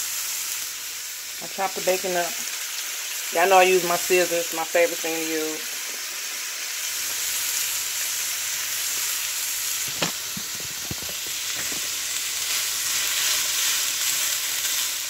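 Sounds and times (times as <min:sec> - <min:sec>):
meat and vegetables sizzling in a pan: 0:00.0 - 0:15.0
spatula knocking and scraping a pan: 0:09.8 - 0:12.0.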